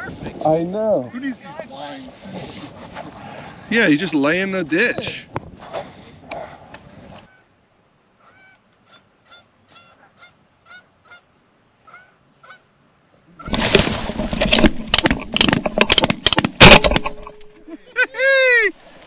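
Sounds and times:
geese honking: 0:08.2 - 0:12.7
loud rustling and clattering: 0:13.5 - 0:17.5.

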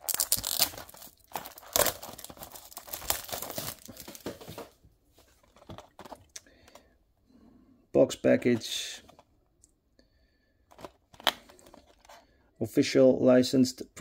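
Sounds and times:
plastic wrap tearing and crinkling: 0:00.0 - 0:04.4.

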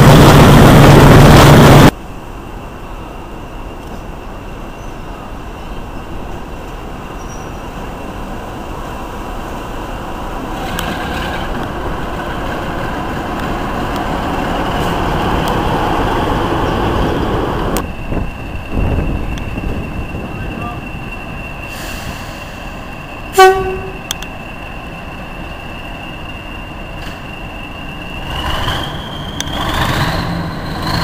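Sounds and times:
diesel locomotive engine: 0:00.0 - 0:31.0
wheels clicking on track: 0:10.5 - 0:17.9.

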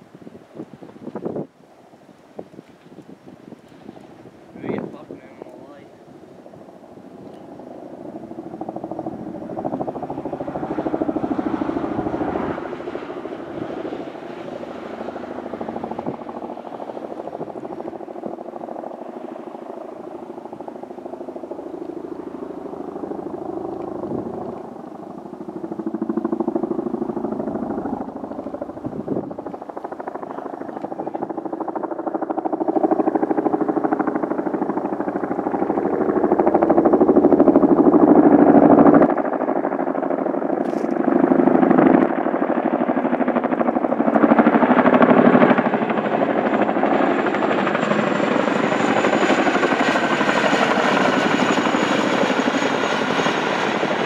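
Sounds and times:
helicopter rotors beating: 0:00.0 - 0:54.0.

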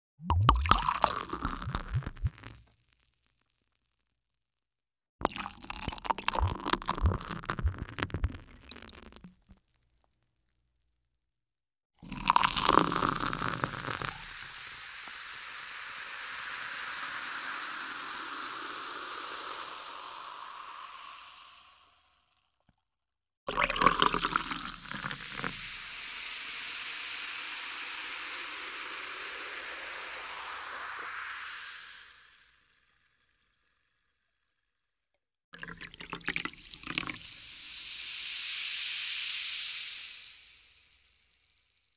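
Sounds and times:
soda fizzing: 0:00.2 - 0:02.6, 0:05.2 - 0:09.6, 0:12.0 - 0:22.4, 0:23.5 - 0:33.6, 0:35.6 - 0:41.9
soda pouring with glugs: 0:00.2 - 0:02.7, 0:05.2 - 0:09.6, 0:12.0 - 0:14.8, 0:23.5 - 0:26.2, 0:35.6 - 0:40.7.

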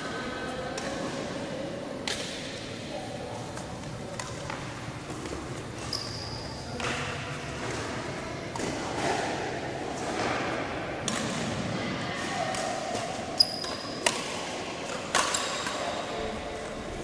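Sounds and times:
murmur of voices: 0:00.0 - 0:17.0
shoe squeak: 0:05.8 - 0:06.7, 0:13.4 - 0:14.0.

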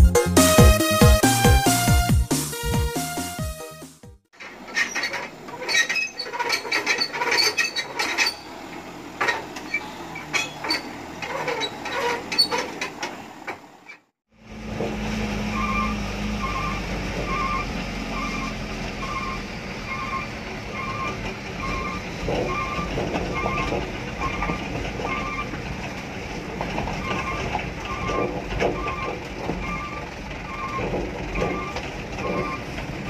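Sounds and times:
truck engine running: 0:00.0 - 0:33.0
truck rattling on rough road: 0:00.0 - 0:33.0.

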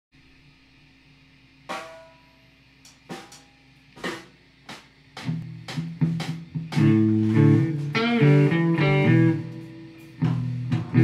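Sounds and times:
low steady hum: 0:00.2 - 0:11.0
drum kit hits: 0:01.6 - 0:02.4, 0:03.0 - 0:11.0
guitar notes: 0:05.4 - 0:11.0.

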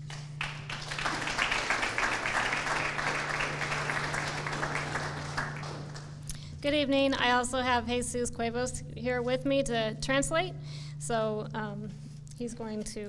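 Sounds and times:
audience applauding: 0:00.0 - 0:06.3.

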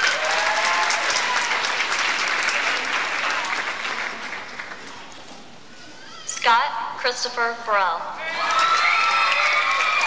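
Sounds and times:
audience applauding: 0:00.0 - 0:05.1, 0:08.3 - 0:10.0.

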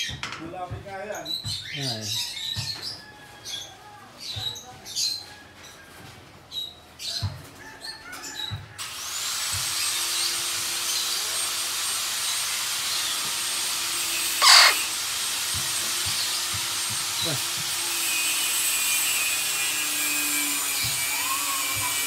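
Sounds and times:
parrot squawk: 0:14.3 - 0:15.0
parrot chirps: 0:14.4 - 0:14.9.

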